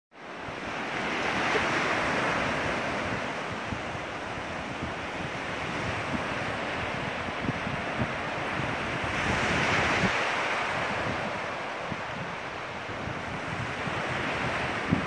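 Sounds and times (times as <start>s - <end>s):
surf washing onto beach: 0.2s - 15.0s
wind buffeting microphone: 0.2s - 15.0s.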